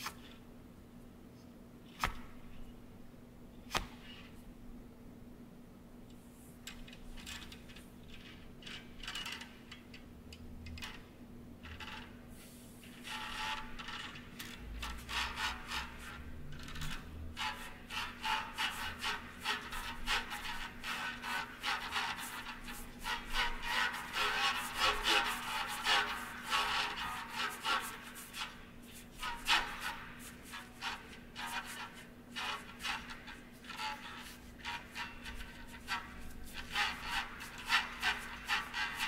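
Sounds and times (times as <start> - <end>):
faint steady hum: 0.0 - 39.0
small clicks rattles and scrapes: 6.6 - 12.2, 13.0 - 15.8, 16.5 - 17.6.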